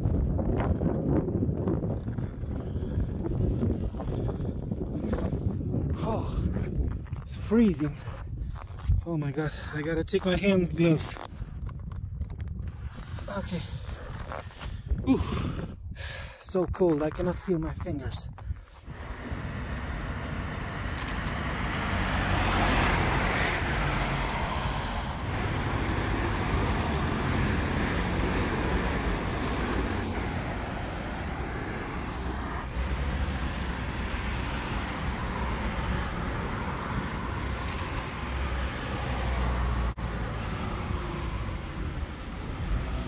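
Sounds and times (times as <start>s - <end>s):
passing cars: 18.9s - 43.0s.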